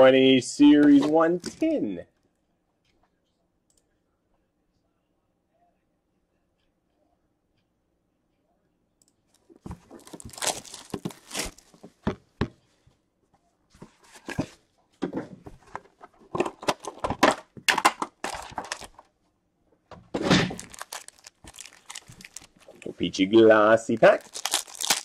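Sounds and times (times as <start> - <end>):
plastic wrap tearing and crinkling: 9.9 - 11.7, 17.9 - 19.0, 20.3 - 23.0, 23.9 - 25.0.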